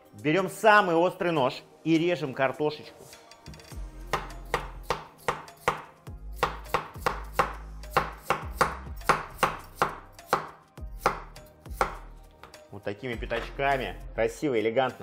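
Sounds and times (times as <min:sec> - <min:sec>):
knife slicing potatoes: 0:04.1 - 0:12.6.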